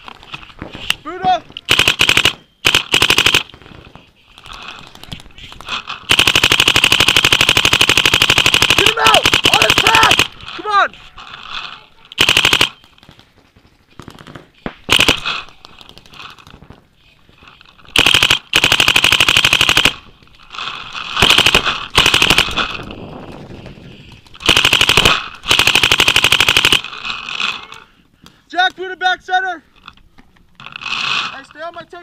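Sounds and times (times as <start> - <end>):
paintball markers firing: 0.6 - 10.4, 12.1 - 16.7.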